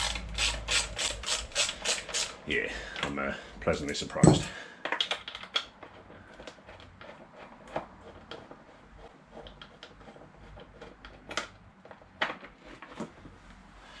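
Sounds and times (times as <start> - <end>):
tools and bolts clicking: 0.0 - 2.4.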